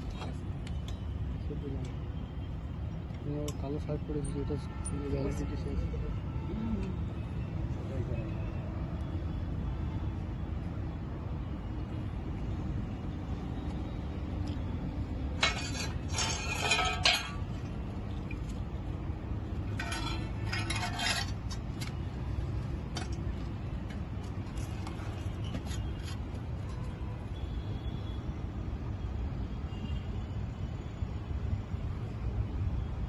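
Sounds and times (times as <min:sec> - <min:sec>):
metal parts clinking and scraping: 0:15.3 - 0:18.6, 0:19.5 - 0:22.0.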